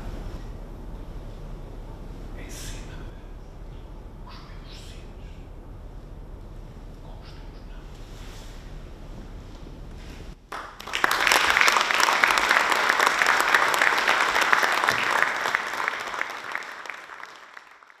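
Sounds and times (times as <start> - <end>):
audience applauding: 10.5 - 18.0.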